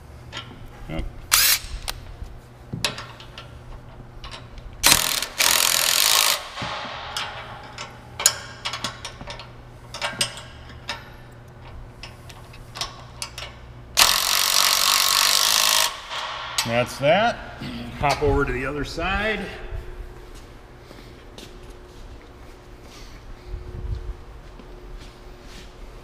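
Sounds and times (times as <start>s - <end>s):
impact driver running: 1.3s - 2.0s, 4.8s - 7.2s, 14.0s - 16.6s.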